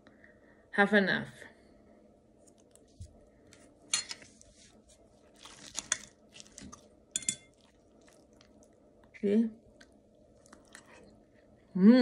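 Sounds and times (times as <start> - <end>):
fork clinking and scraping on plate: 3.9 - 4.3, 5.8 - 7.7.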